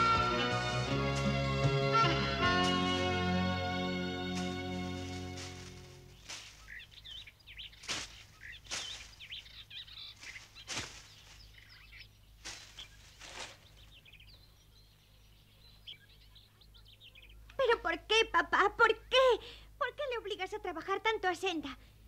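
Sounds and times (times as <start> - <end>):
birds chirping: 0.0 - 19.2
pitchfork tossing hay swishes: 0.4 - 11.7, 12.4 - 13.9.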